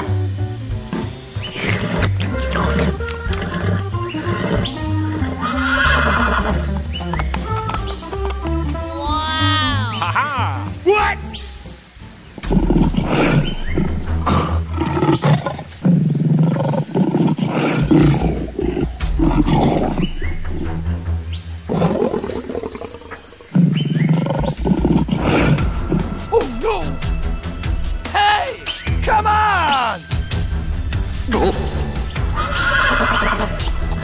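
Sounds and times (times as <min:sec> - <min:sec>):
background music: 0:00.0 - 0:34.0
big cat growling and roaring: 0:12.4 - 0:20.8, 0:21.7 - 0:26.2.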